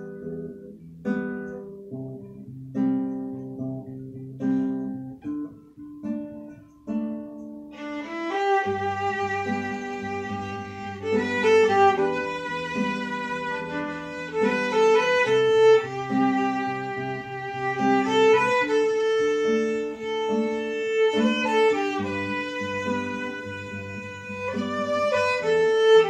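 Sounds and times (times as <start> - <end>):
acoustic guitar chords: 0.0 - 26.0
violin melody: 7.6 - 26.0.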